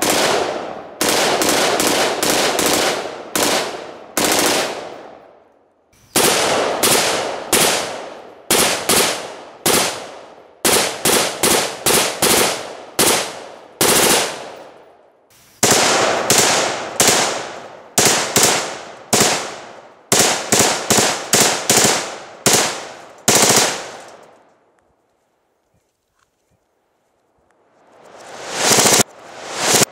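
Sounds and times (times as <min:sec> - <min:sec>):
rifle shots echoing: 0:00.0 - 0:05.3, 0:06.1 - 0:14.8, 0:15.6 - 0:24.4, 0:28.4 - 0:29.0.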